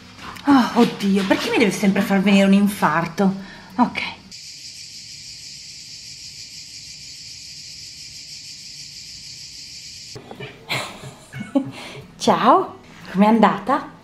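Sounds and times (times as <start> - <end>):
cicadas buzzing: 0.9 - 10.2.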